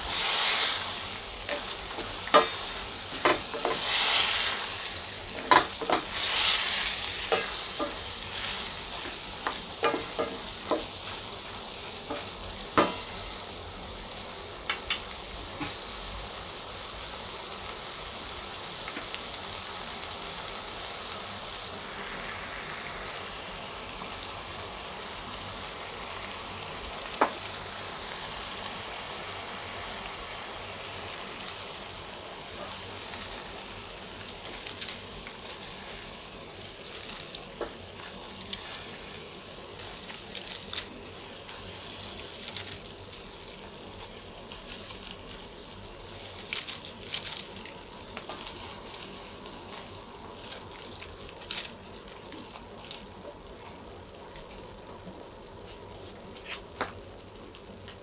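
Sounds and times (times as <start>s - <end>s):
food sizzling in a pan: 0.0s - 58.0s
utensil scraping and clicking on pan: 1.5s - 4.2s, 5.4s - 6.5s.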